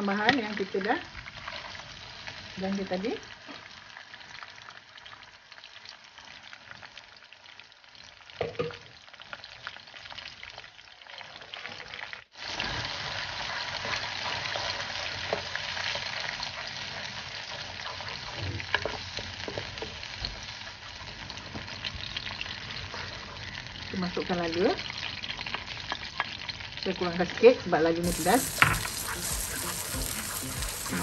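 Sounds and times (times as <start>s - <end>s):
paste sizzling in hot oil: 10.0s - 21.2s, 28.0s - 31.0s
wooden spatula scraping wok: 28.0s - 31.0s.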